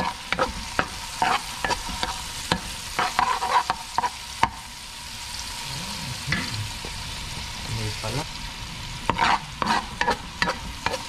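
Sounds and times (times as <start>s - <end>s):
utensil scraping a pan: 0.0s - 4.2s, 9.1s - 11.0s
garlic sizzling in a frying pan: 0.0s - 11.0s.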